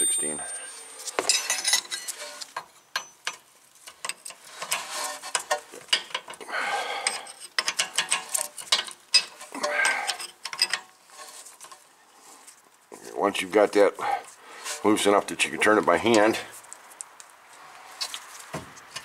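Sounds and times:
wrenches clinking on metal: 0.0s - 11.8s.

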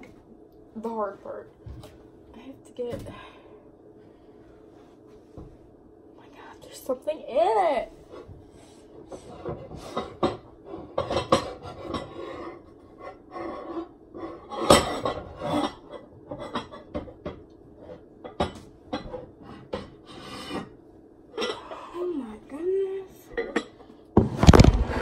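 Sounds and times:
dishes and pans clattering: 9.1s - 21.6s, 23.3s - 23.9s.

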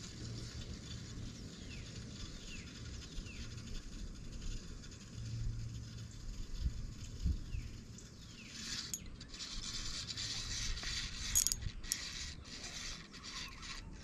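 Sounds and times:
fishing reel gears whirring: 8.5s - 14.0s
sharp reel clicks: 8.5s - 14.0s.

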